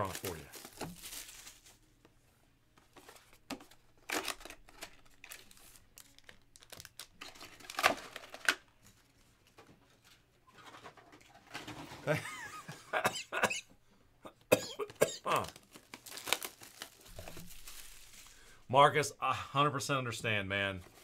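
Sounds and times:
foil pack crinkling: 0.0s - 1.8s, 3.0s - 8.6s, 15.3s - 18.6s.

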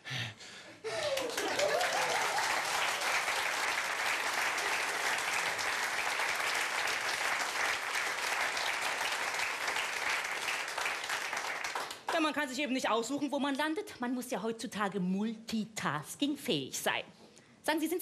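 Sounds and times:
audience applauding: 0.9s - 12.2s.

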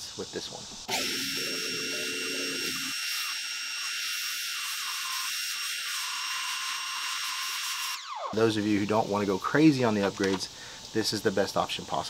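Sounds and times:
pressure washer spraying water: 0.9s - 2.9s.

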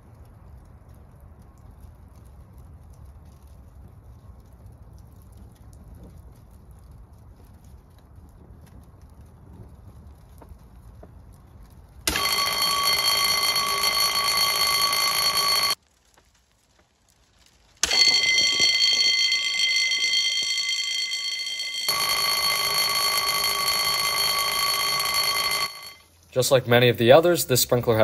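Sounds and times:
alarm bell ringing: 12.1s - 15.8s, 17.8s - 26.0s.

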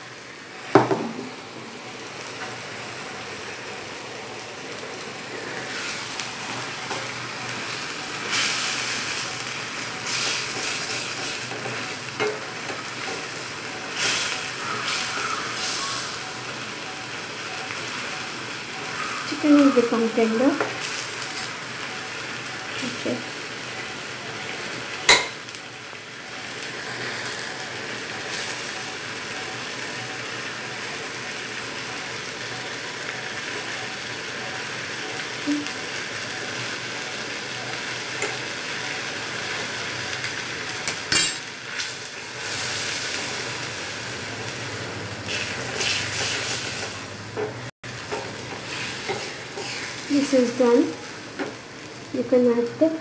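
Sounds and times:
gravy sizzling in a pan: 0.0s - 53.0s
spoon stirring and scraping pan: 5.5s - 15.8s, 38.0s - 39.6s, 45.3s - 50.3s
spoon clinking against pan: 25.1s - 25.4s.

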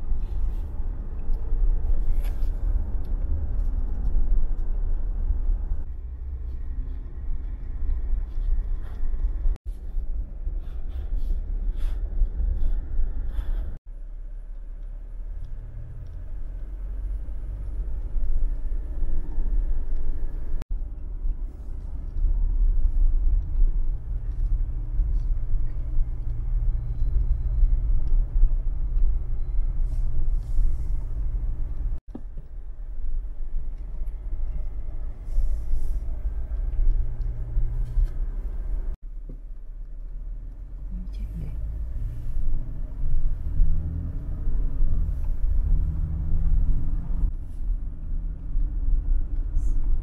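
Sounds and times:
car engine and road rumble: 0.0s - 50.0s.

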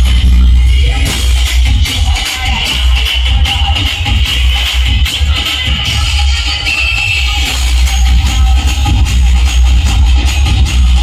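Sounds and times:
loud music with heavy bass: 0.0s - 11.0s.

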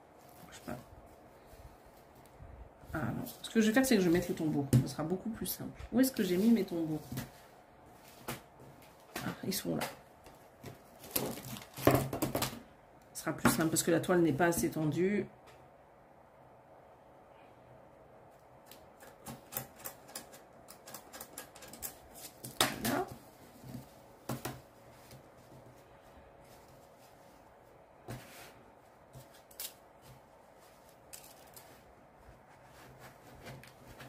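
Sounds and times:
cloth rustling: 22.0s - 34.0s.

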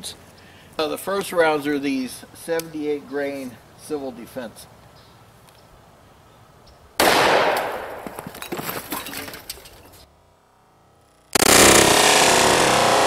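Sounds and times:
pistol shot: 7.0s - 8.0s
loud steady rushing noise: 11.3s - 13.0s.

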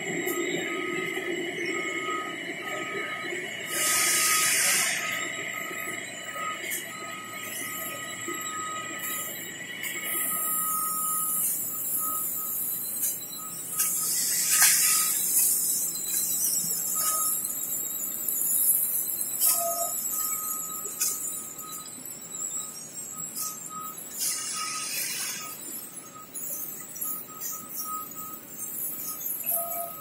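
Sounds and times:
production line mechanical hiss: 3.6s - 6.0s, 9.0s - 20.2s, 23.3s - 25.6s
thin high squeal: 10.0s - 21.7s, 22.6s - 30.0s.

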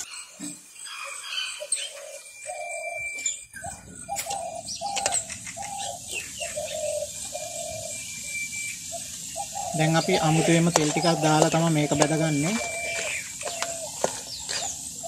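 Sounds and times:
dove cooing: 0.9s - 15.0s
oil sizzling in a wok: 7.0s - 15.0s.

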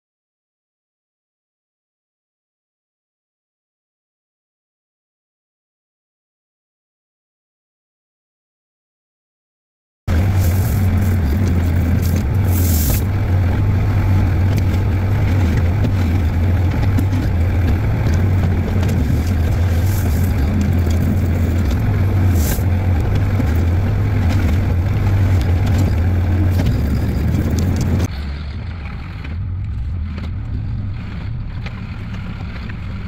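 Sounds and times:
bucket scraping gravel: 10.1s - 13.2s, 14.0s - 28.1s
diesel engine running under load: 10.1s - 33.0s.

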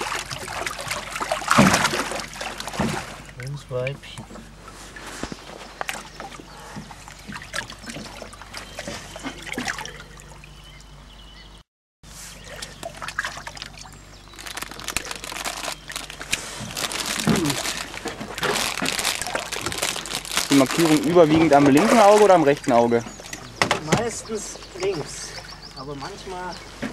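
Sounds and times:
water splashing in a tub: 0.0s - 4.4s, 5.8s - 10.6s, 12.4s - 24.2s.

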